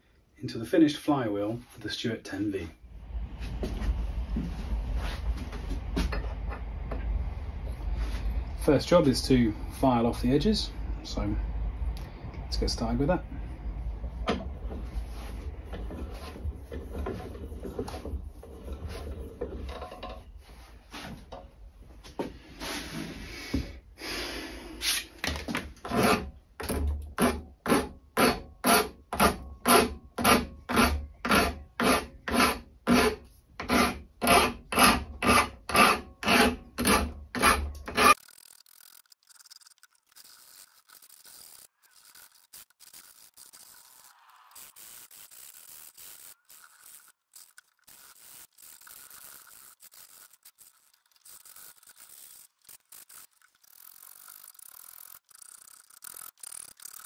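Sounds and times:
hand file rasping on metal: 25.8 - 26.3, 27.2 - 38.2.

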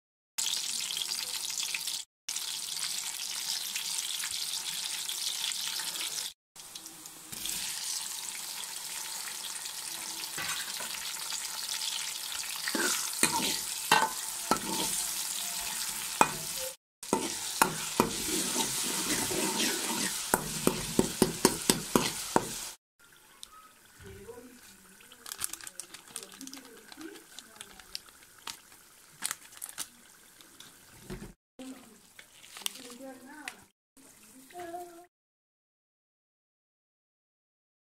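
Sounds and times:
vegetables sizzling in hot oil: 0.4 - 34.9
utensil clicking and scraping pot: 12.6 - 15.1, 16.2 - 22.7.

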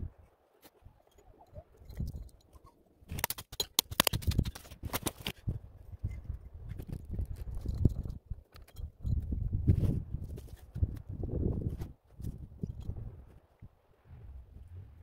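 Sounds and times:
hatchet chopping branches: 3.1 - 5.4.

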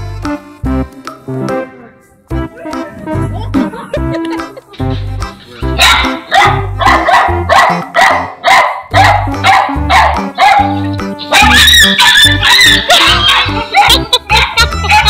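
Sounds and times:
background music: 0.0 - 15.0
dog barking rapidly: 5.8 - 15.0.

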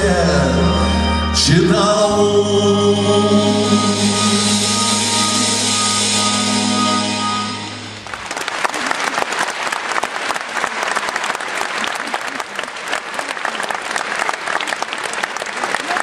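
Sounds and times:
band's held chord: 0.0 - 8.2
audience applause: 7.9 - 16.0.

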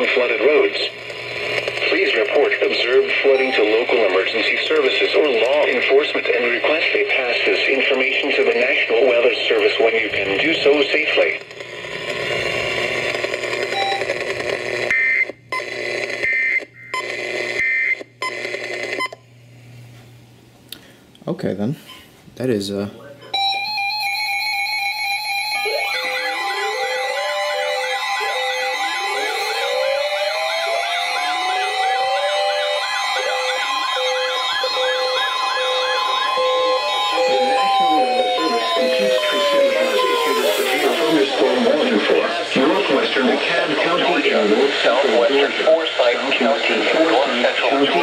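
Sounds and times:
radio static hiss: 0.0 - 14.9, 28.0 - 48.0
long steady high alert tone: 3.2 - 5.8, 23.3 - 44.4
short beeps: 3.3 - 4.0
warbling siren-like chirps: 3.3 - 4.4, 23.4 - 43.2.

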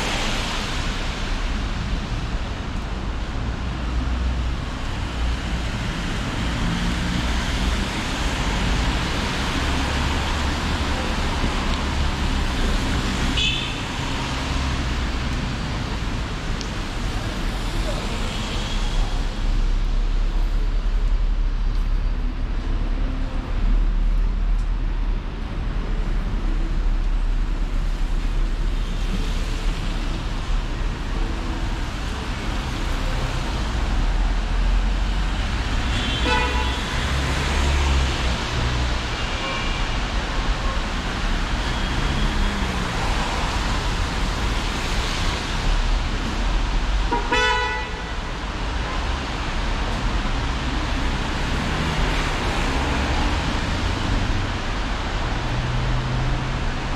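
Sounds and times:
city street traffic: 0.0 - 56.9
vehicle horn toots: 35.9 - 36.8, 47.1 - 48.1.

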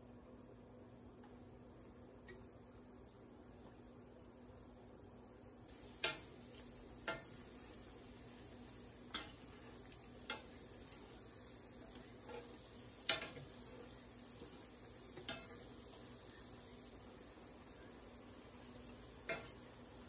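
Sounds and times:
faint sizzle of frying: 0.0 - 20.0
metal utensils clinking on pot: 12.2 - 13.5, 15.2 - 15.6.

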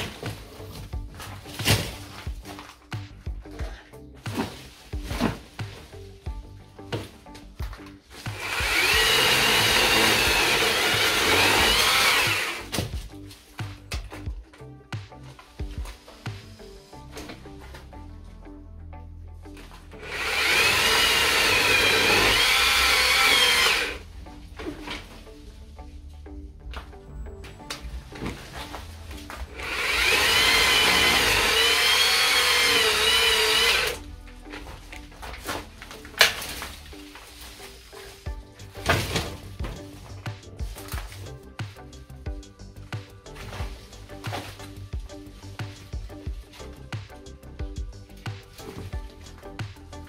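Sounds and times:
background music: 0.0 - 50.0
chainsaw at full throttle: 8.3 - 12.7, 20.0 - 24.0, 29.5 - 34.0.

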